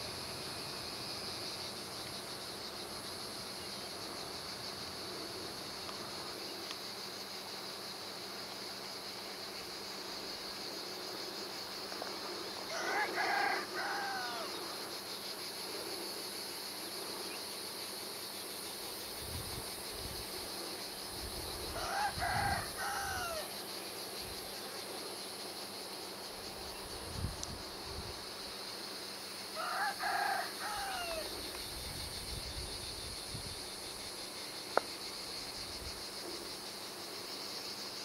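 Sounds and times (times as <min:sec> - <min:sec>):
high insect drone: 0:00.0 - 0:38.0
rooster crowing: 0:12.7 - 0:14.6, 0:21.7 - 0:23.5, 0:29.6 - 0:31.3
wind rumble on microphone: 0:19.2 - 0:20.3, 0:26.9 - 0:28.2, 0:31.7 - 0:33.7.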